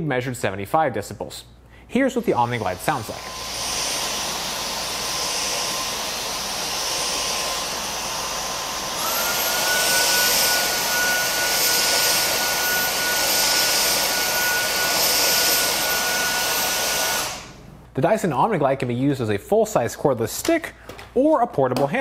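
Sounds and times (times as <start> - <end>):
cordless vacuum whining: 2.4 - 17.8.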